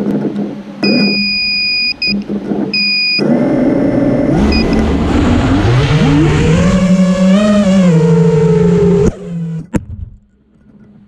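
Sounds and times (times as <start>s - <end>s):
high-pitched beeps: 0.8s - 3.2s, 4.4s - 4.8s
quadcopter motors whining: 0.8s - 9.7s.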